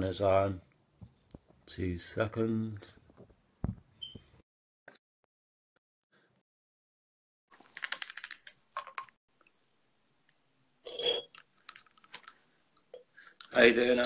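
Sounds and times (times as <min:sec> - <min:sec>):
plastic items clicking and rattling: 0:07.6 - 0:09.2, 0:11.2 - 0:14.0.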